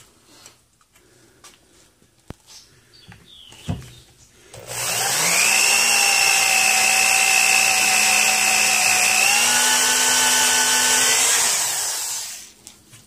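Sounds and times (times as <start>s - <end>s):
electric drill boring into wood: 4.5s - 12.6s.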